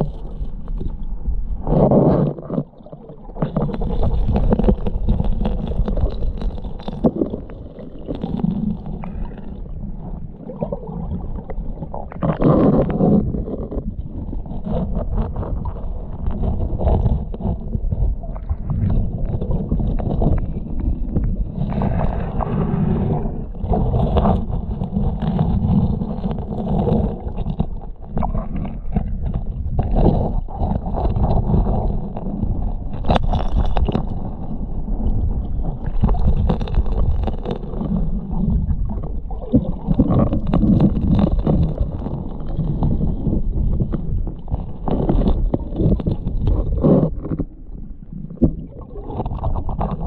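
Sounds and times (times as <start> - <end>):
muffled underwater water rumble: 0.0 - 50.0
gravel and stones clicking: 1.7 - 9.6, 23.5 - 50.0.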